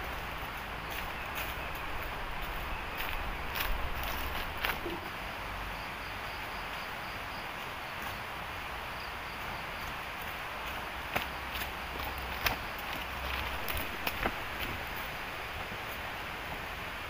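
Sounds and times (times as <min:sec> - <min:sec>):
steady forest hiss: 0:00.0 - 0:17.0
high insect trill: 0:00.4 - 0:16.0
light crunch: 0:00.9 - 0:05.1, 0:10.6 - 0:15.1.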